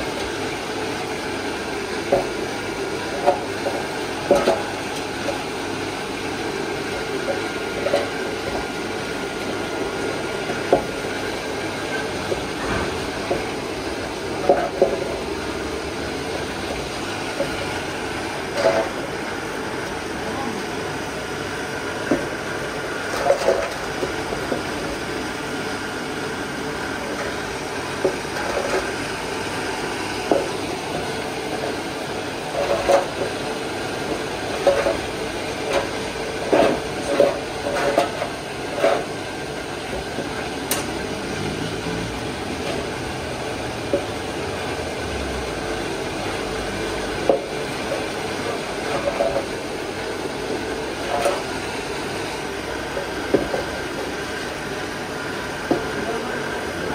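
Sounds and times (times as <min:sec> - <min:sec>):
pot scraping and clinking: 0:32.5 - 0:33.4, 0:34.1 - 0:39.2.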